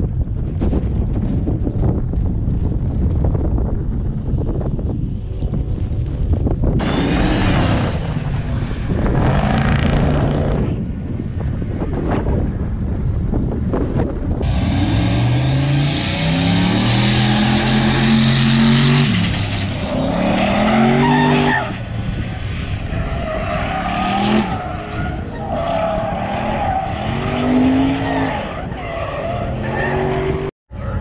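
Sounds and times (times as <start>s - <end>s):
car engine revving: 6.8s - 10.8s, 14.4s - 25.3s.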